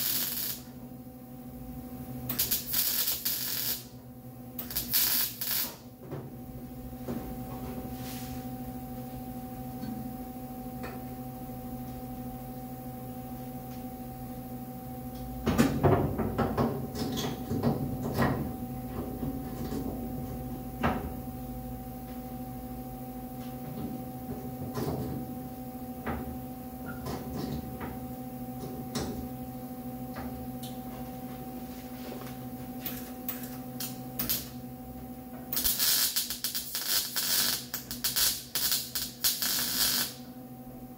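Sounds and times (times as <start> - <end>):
spot welding crackle: 0.0 - 0.8, 2.3 - 4.0, 4.6 - 5.9, 32.8 - 34.6, 35.5 - 40.3
welder electrical hum: 0.0 - 40.9.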